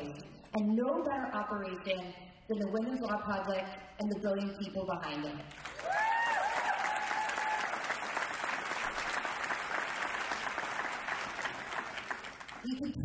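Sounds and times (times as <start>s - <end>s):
audience applauding: 5.5s - 12.9s
person cheering: 5.8s - 7.9s.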